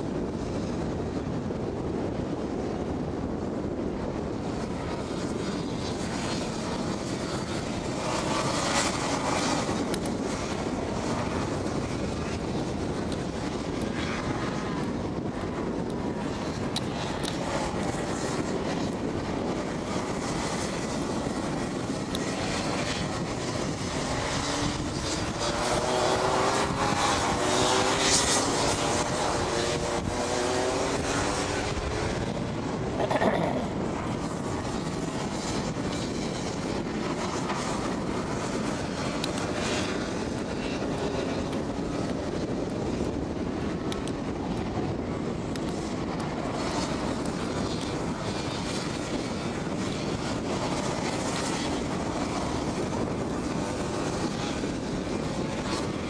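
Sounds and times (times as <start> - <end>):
kart engines racing: 22.4 - 32.3.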